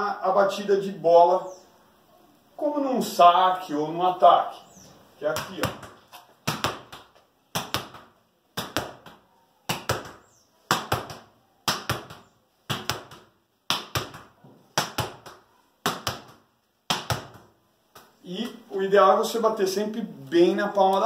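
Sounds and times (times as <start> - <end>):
ball hitting wall and floor: 5.2 - 18.6
hand slapping ball: 5.3 - 18.6.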